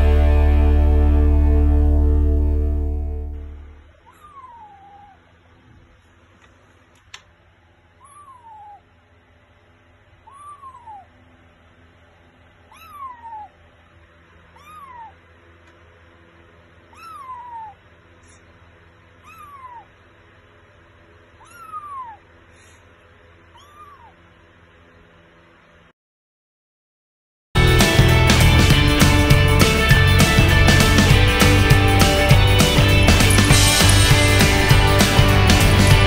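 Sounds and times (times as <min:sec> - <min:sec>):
kitten meowing: 0:04.0 - 0:05.2, 0:08.0 - 0:08.9, 0:10.2 - 0:11.2, 0:12.6 - 0:13.6, 0:14.5 - 0:15.2, 0:16.9 - 0:17.8, 0:19.2 - 0:20.0, 0:21.4 - 0:22.3, 0:23.5 - 0:24.2.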